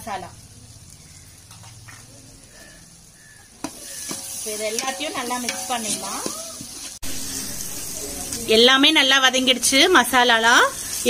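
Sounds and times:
food sizzling: 0:00.0 - 0:11.0
spoon clacking against pot: 0:03.6 - 0:06.7
spoon scraping with squeaky tones: 0:03.7 - 0:07.6.

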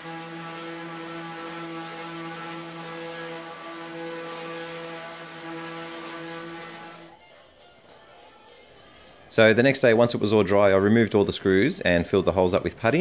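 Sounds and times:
orbital sander running: 0:00.0 - 0:07.1.

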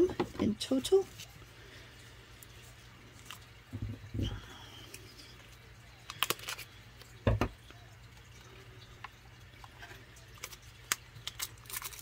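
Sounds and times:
plastic wrap crackling: 0:05.9 - 0:07.2, 0:09.5 - 0:12.0.

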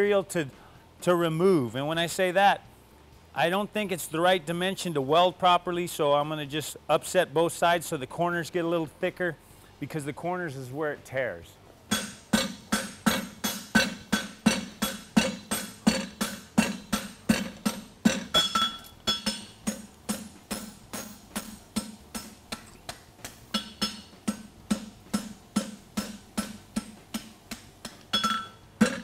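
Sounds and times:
hammer ringing on anvil: 0:11.9 - 0:22.4, 0:23.5 - 0:26.5, 0:28.1 - 0:29.0.

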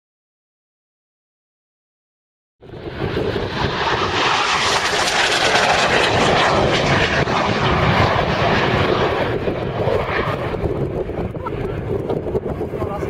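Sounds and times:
jet flyby roar: 0:02.6 - 0:13.0.

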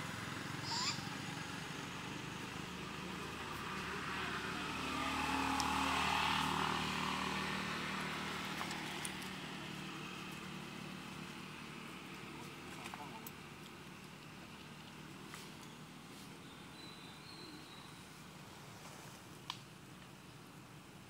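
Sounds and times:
distant vehicle engine passing: 0:00.0 - 0:16.7.

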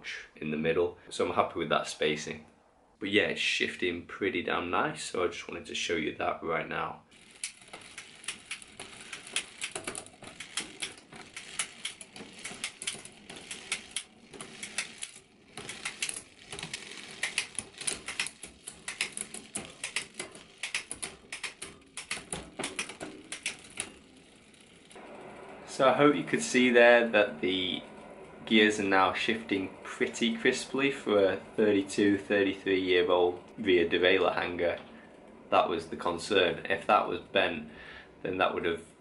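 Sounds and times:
bicycle chain clicking over cogs: 0:07.1 - 0:33.4.

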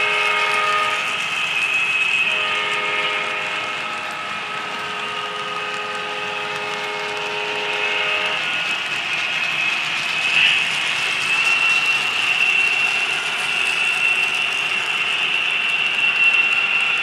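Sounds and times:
train cars rolling: 0:00.0 - 0:17.0
train horn chord: 0:02.3 - 0:04.2, 0:05.1 - 0:08.4.

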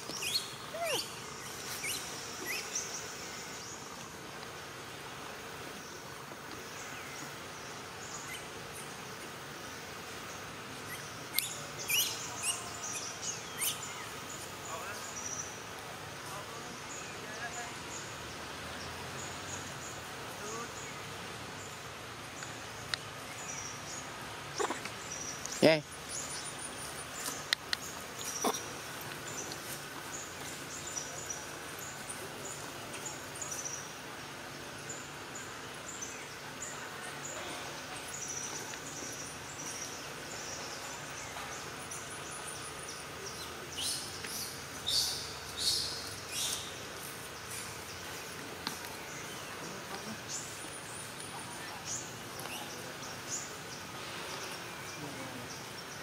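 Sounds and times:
high falling bird calls: 0:00.0 - 0:04.6, 0:10.0 - 0:18.2
insects buzzing: 0:00.0 - 0:56.0.

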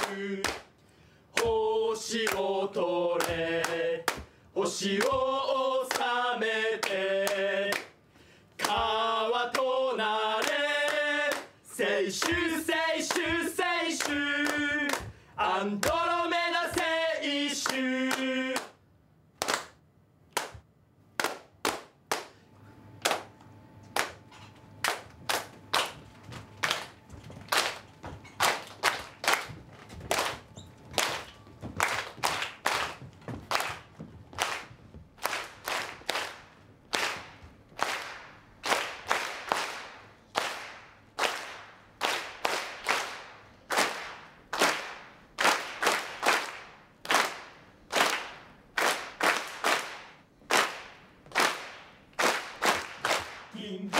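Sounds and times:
sharp hand claps: 0:00.0 - 0:00.7, 0:19.4 - 0:22.4, 0:23.0 - 0:24.2, 0:24.8 - 0:26.0, 0:26.6 - 0:30.4, 0:31.0 - 0:53.5.

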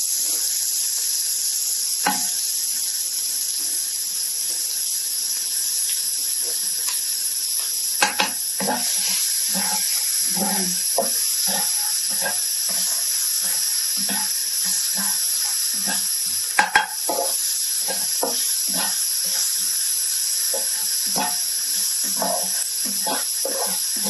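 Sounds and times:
onion and garlic sizzling in oil: 0:00.0 - 0:24.0
spatula scraping a wok: 0:08.0 - 0:24.0.

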